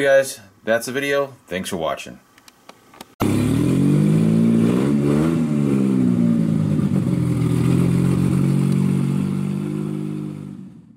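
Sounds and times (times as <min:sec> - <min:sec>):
car engine revving: 0:03.2 - 0:10.9.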